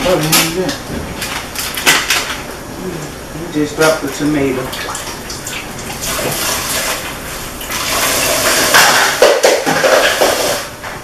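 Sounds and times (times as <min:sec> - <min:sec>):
tap water running into sink: 0:03.8 - 0:10.8.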